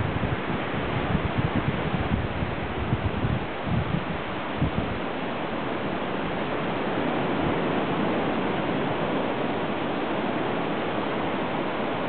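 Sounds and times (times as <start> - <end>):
surf: 0.0 - 12.0
wind: 0.0 - 12.0.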